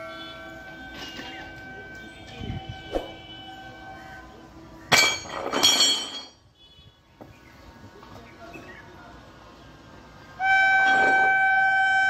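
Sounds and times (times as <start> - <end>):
metallic clangs with ring: 4.9 - 6.4.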